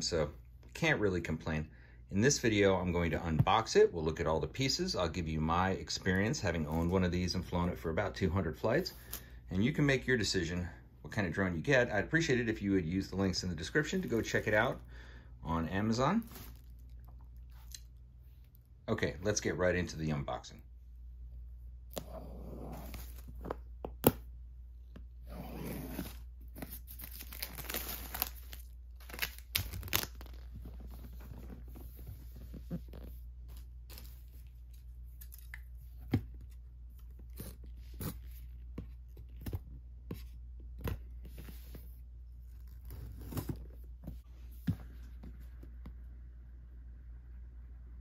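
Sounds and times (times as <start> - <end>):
shrink-wrap crinkling and tearing: 26.5 - 31.6.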